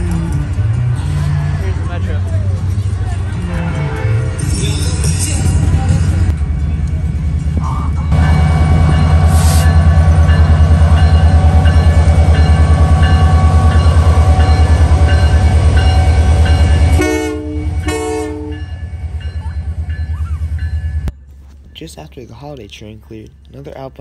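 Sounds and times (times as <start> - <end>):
diesel locomotive rumbling past: 0.0 - 22.6
locomotive horn blasts: 16.0 - 18.9.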